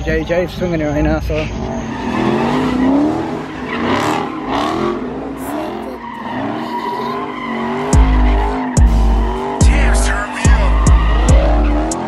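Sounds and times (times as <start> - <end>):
tyres squealing: 0.7 - 12.0
car engine revving: 0.9 - 12.0
bass-heavy music beat: 7.8 - 12.0.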